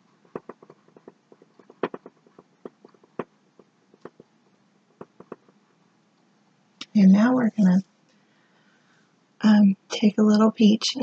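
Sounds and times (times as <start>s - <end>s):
paintbrush tapping on canvas: 0.2s - 5.6s.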